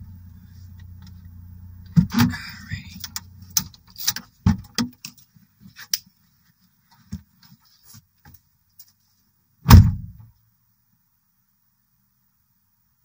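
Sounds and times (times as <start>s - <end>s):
car door shutting: 0.0s - 4.8s, 9.7s - 10.1s.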